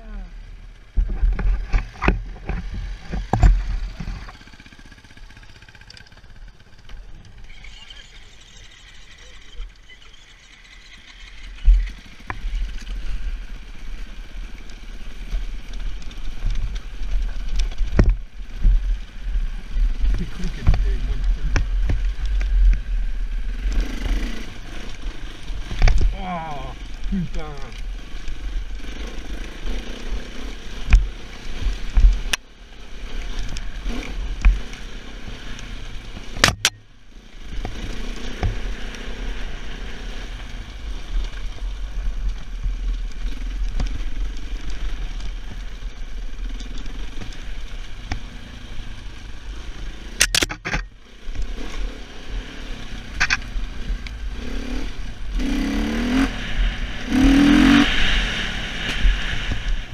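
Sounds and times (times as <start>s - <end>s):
motorcycle engine revving: 0.0s - 59.9s
bike knocking over rocks: 0.9s - 4.5s.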